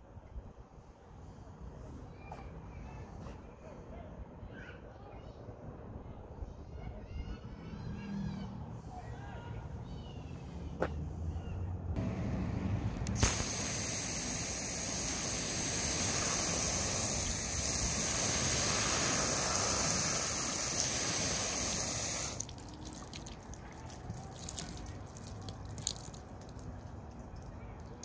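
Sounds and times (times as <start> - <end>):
water spray hissing on fabric: 13.1 - 26.6
water dripping: 13.2 - 28.0.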